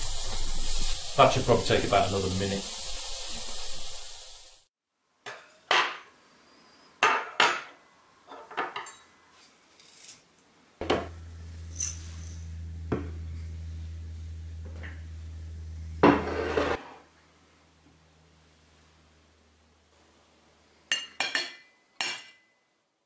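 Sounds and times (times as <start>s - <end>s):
fish sizzling in a frying pan: 0.0s - 4.7s
steady low hum: 10.8s - 20.0s
cutlery and glassware clinking: 20.9s - 22.6s.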